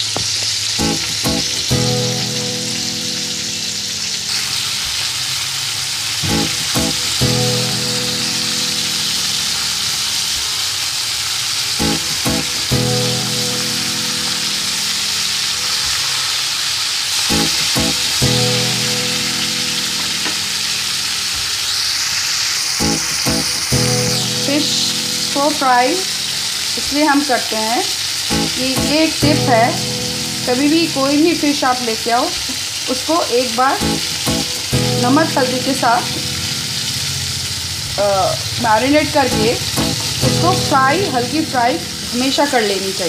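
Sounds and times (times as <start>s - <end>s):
fish sizzling in hot oil: 0.0s - 43.0s
looping background music: 0.8s - 4.3s, 6.2s - 9.6s, 11.8s - 15.0s, 17.3s - 21.0s, 22.8s - 26.8s, 28.3s - 31.4s, 33.8s - 37.1s, 39.1s - 42.6s.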